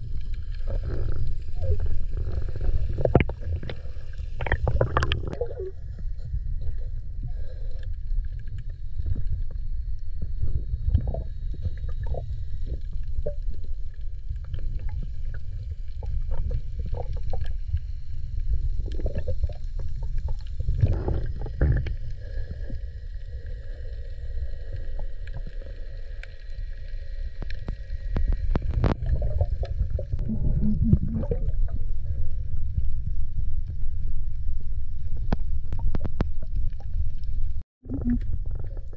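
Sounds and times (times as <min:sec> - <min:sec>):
clicks and crackles: 0:00.0 - 0:05.6, 0:24.5 - 0:31.8, 0:35.0 - 0:38.9
muffled underwater rumble: 0:00.0 - 0:38.9.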